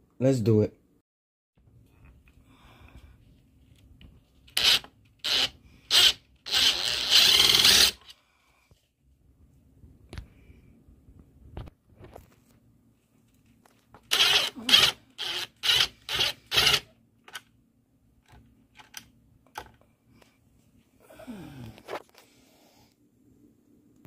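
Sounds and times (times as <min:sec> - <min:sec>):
impact driver turning a screw: 0:04.5 - 0:08.2, 0:14.0 - 0:17.4.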